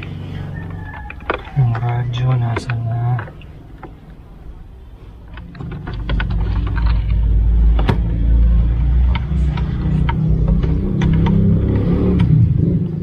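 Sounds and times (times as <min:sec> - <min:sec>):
plastic clicks and knocks: 0:00.6 - 0:04.2, 0:05.3 - 0:08.1.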